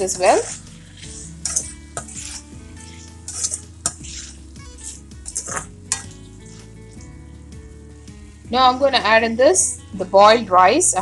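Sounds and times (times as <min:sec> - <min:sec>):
spatula scraping iron pan: 0:00.0 - 0:06.8
light sizzle: 0:00.0 - 0:07.1.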